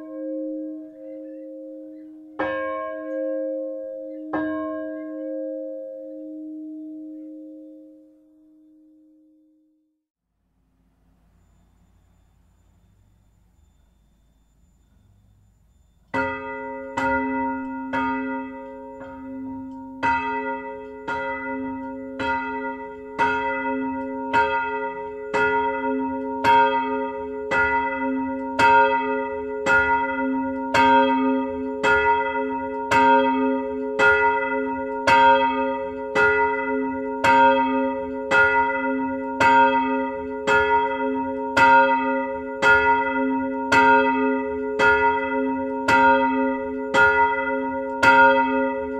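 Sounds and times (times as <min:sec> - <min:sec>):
church bell ringing: 0:00.0 - 0:09.4, 0:11.4 - 0:48.9
low bell hum: 0:11.0 - 0:48.9.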